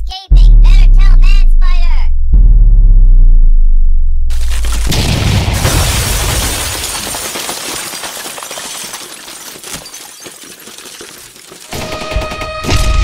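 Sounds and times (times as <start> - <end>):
low rumble: 0.3 - 5.5
shattering crumbling debris: 4.3 - 12.3.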